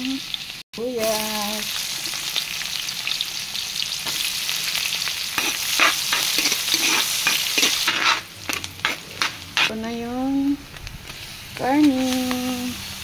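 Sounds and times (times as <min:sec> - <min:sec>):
onion and garlic sizzling in oil: 0:00.0 - 0:13.0
spatula scraping a pan: 0:05.3 - 0:09.8.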